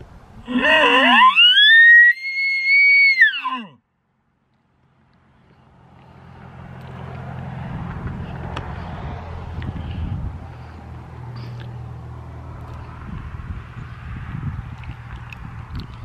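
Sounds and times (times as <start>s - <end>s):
high elk call whistle: 0.5s - 3.7s
car approaching: 3.8s - 16.0s.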